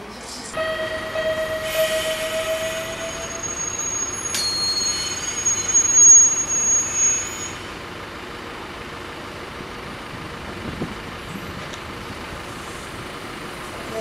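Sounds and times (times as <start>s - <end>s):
train running rumble: 0.0s - 14.0s
steady hum: 0.6s - 6.8s
train wheels squealing on rails: 0.6s - 7.8s.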